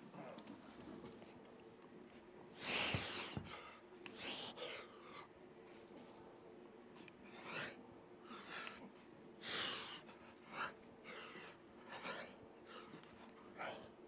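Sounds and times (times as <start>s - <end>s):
faint steady hum: 0.0s - 14.0s
man breathing hard: 2.5s - 5.4s, 7.3s - 14.0s.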